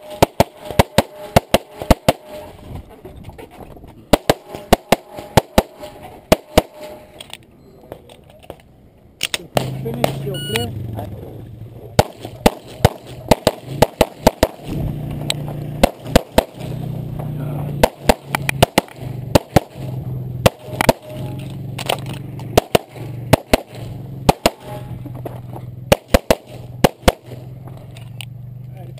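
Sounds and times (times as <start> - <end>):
pistol firing rapid shots: 0.1 - 2.3, 4.1 - 6.8, 12.0 - 14.7, 15.8 - 16.8, 17.8 - 19.8, 20.4 - 21.1, 22.5 - 24.7, 25.9 - 27.4.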